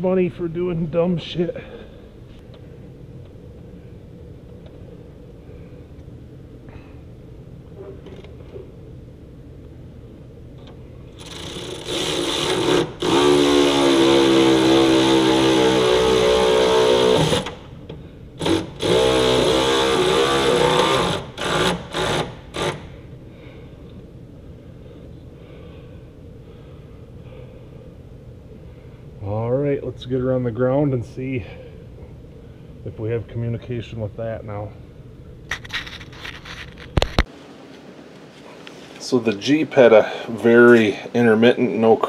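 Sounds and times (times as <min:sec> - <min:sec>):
handheld power tool motor: 0:11.2 - 0:17.6, 0:18.4 - 0:22.9.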